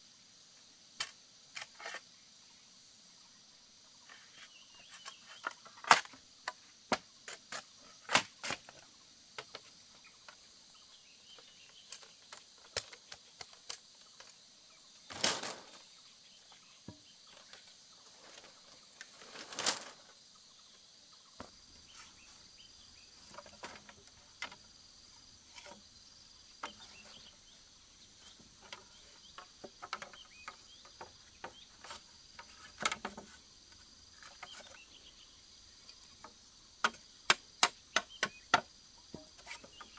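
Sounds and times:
crickets chirring: 0.0s - 39.9s
bamboo slats knocking and clattering: 4.0s - 10.6s, 11.4s - 14.4s, 15.0s - 15.9s, 16.5s - 20.2s, 21.4s - 22.5s, 23.1s - 35.0s, 35.8s - 39.9s
machete striking bamboo pole: 36.8s - 39.8s.

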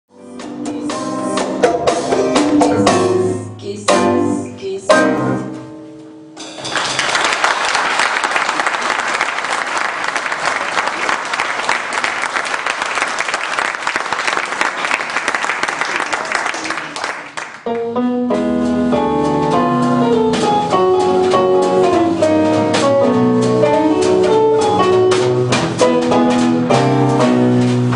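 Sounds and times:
band music: 0.1s - 7.4s, 16.5s - 27.9s
audience applauding: 6.6s - 17.7s.

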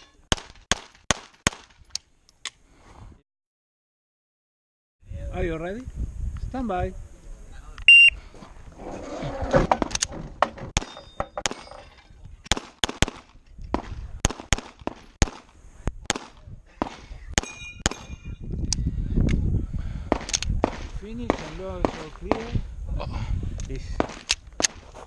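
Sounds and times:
metallic ringing of steel targets: 10.8s - 12.1s, 17.4s - 18.4s
pistol shots: 12.5s - 15.5s.

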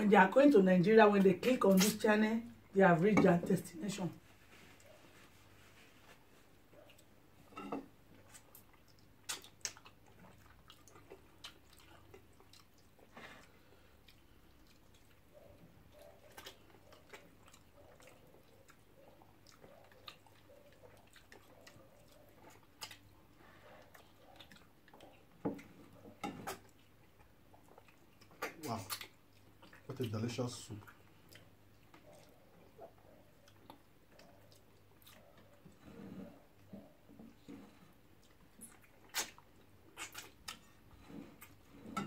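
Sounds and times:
people chewing and eating: 4.4s - 42.0s
mouth clicks and smacks: 8.3s - 13.0s, 26.4s - 30.1s, 36.8s - 40.6s.

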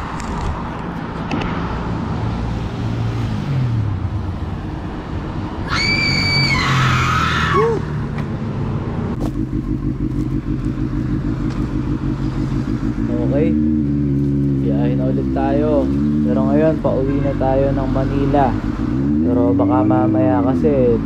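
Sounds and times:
motorcycle engines idling: 8.2s - 16.9s.

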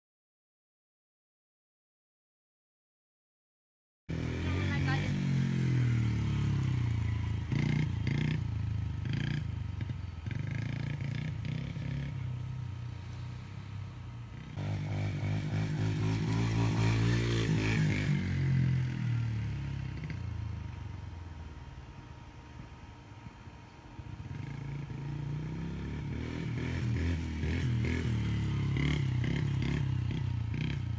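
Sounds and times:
dirt bike engine revving: 4.1s - 20.4s, 24.2s - 30.9s.

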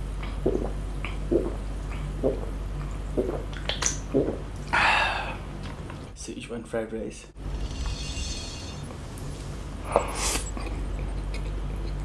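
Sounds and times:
person gulping loud swallows: 0.2s - 4.8s.

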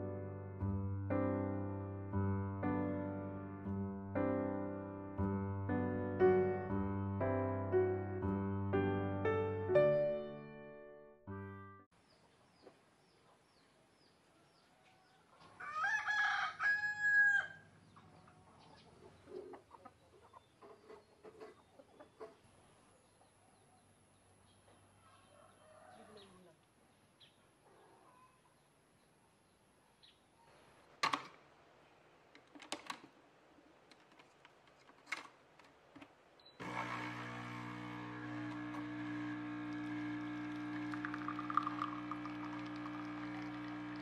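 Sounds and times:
rooster crowing: 15.6s - 17.7s, 25.1s - 26.4s
coffee machine pump humming: 36.6s - 44.0s.

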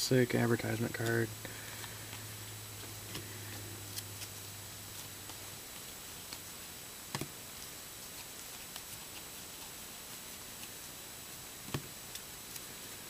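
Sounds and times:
steady hiss: 0.0s - 13.0s
trading cards clicking: 0.6s - 1.2s.

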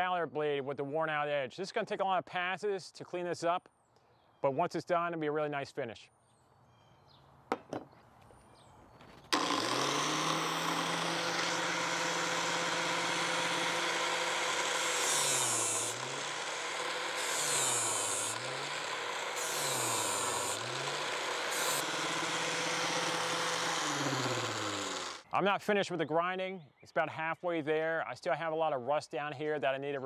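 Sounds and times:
angle grinder whine: 9.3s - 25.2s
grinding hiss on metal blade: 11.2s - 25.2s.

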